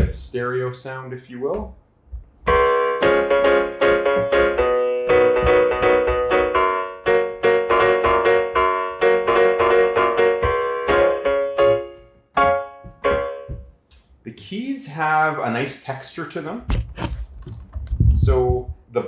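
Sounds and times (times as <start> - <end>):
digital piano notes and chords: 2.4 - 13.9.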